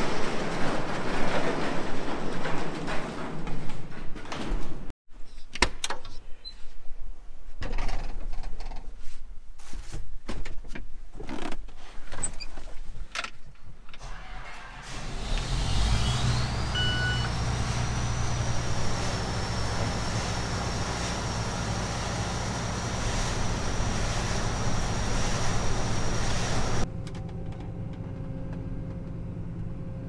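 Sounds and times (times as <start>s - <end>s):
engine whine: 14.0s - 30.0s
diesel engine idling: 14.9s - 26.8s
short electronic beep: 16.7s - 17.3s.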